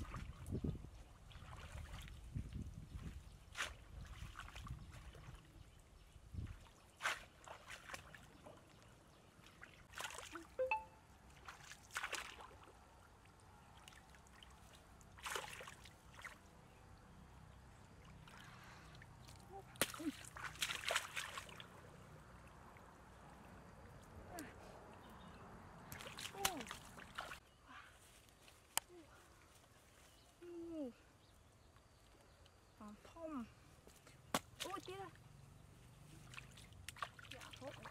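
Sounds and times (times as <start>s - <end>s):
muddy water splashing: 0.0s - 16.5s, 18.0s - 27.6s, 34.1s - 37.9s.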